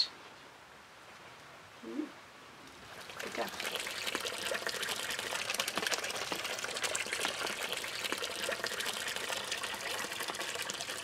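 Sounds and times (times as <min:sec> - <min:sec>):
water pouring into concrete basin: 0:02.8 - 0:11.0.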